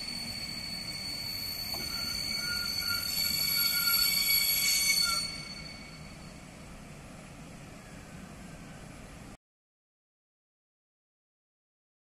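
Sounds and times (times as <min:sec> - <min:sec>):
train brakes squealing: 0:00.0 - 0:06.5.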